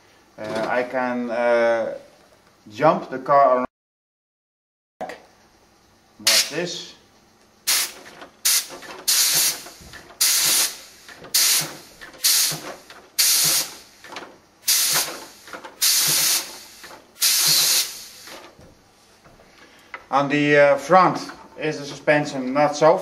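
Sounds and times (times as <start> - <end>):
compressed air hissing bursts: 6.2 - 6.7, 7.6 - 18.6.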